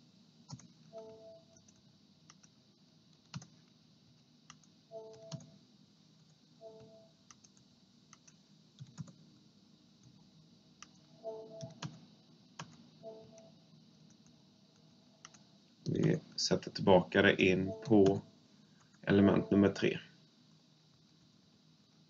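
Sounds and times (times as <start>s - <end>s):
keyboard and mouse clicks: 0.5s - 3.6s, 4.5s - 5.5s, 6.7s - 9.2s, 10.8s - 12.0s.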